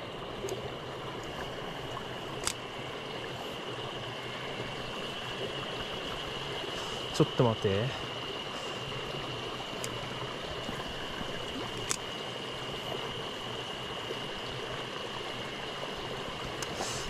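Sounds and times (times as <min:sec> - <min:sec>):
stream rushing over stones: 0:00.0 - 0:17.0
faint clicks: 0:02.4 - 0:02.6, 0:09.8 - 0:10.0, 0:10.6 - 0:12.1, 0:16.6 - 0:17.0.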